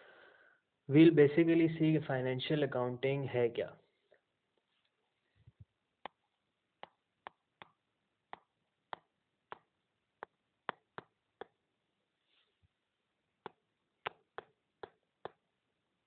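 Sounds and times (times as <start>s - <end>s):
stylus tapping on glass screen: 6.8s - 11.6s, 13.4s - 15.4s.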